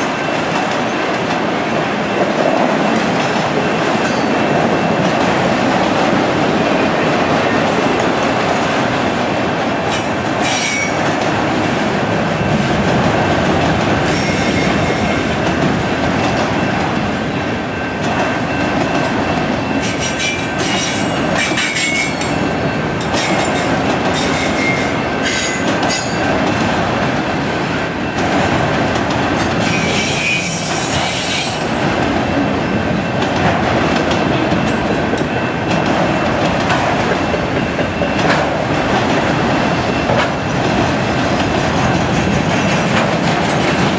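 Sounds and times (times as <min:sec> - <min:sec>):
train wheels clattering on rails: 0:00.0 - 0:43.9
high-pitched wheel squeals: 0:29.7 - 0:31.7.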